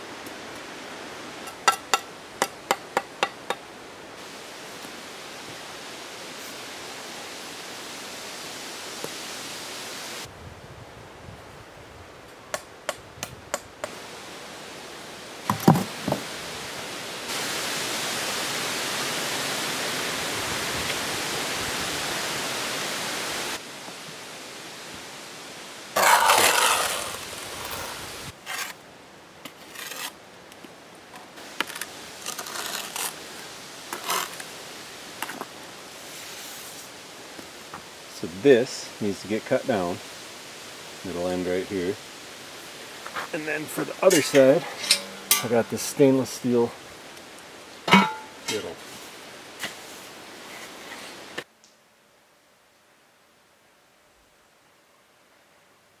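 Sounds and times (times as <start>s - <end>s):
steady hiss: 0.0s - 56.0s
trowel scraping wet mortar: 26.0s - 28.8s, 29.5s - 30.2s, 31.6s - 33.2s.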